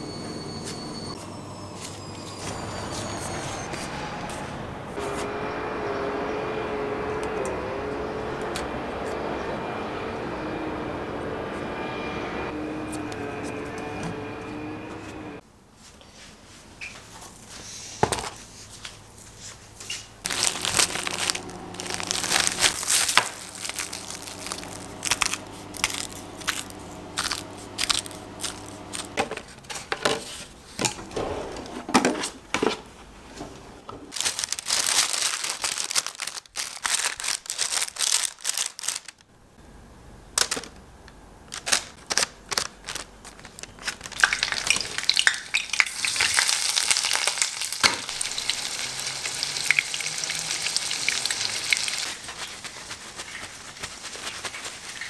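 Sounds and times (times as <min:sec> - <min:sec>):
plastic crinkling and tearing: 0:20.2 - 0:29.2, 0:34.1 - 0:39.3, 0:41.5 - 0:49.5, 0:51.2 - 0:55.0
steady low hum: 0:20.2 - 0:29.6.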